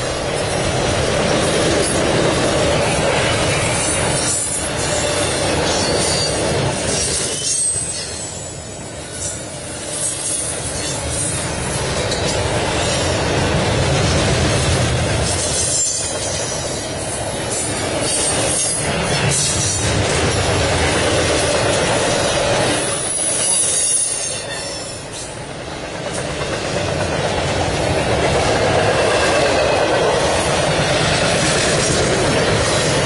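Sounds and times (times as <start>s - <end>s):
freight train wheels rumbling: 0.0s - 33.0s
high wheel squeal: 3.7s - 11.0s, 22.8s - 25.4s.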